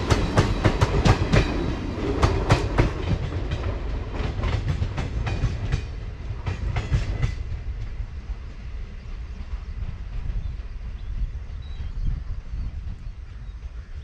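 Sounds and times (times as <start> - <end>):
train wheels clacking over rail joints: 0.0 - 8.2
low train rumble: 0.0 - 14.0.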